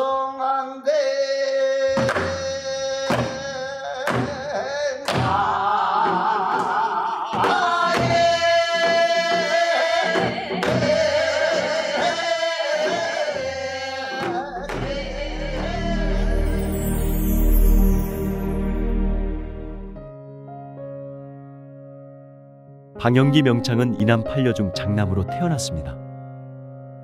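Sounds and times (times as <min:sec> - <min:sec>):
folk singing with wide vibrato: 0:01.8 - 0:19.8.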